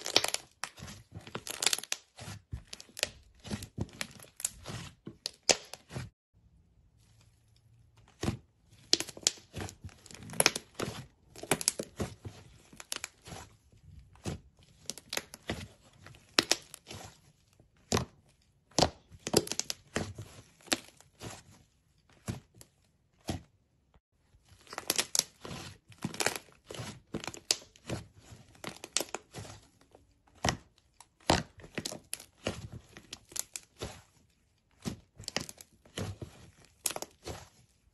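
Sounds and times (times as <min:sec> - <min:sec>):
slime crackling and tearing: 0:00.0 - 0:06.0, 0:08.2 - 0:13.5, 0:24.6 - 0:29.7, 0:30.3 - 0:34.1, 0:34.7 - 0:37.6.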